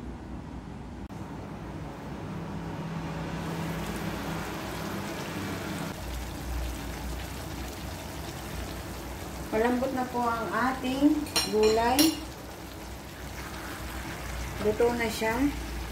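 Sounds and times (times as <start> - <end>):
low hum: 0.0 - 6.0
stew bubbling in a pan: 3.3 - 15.9.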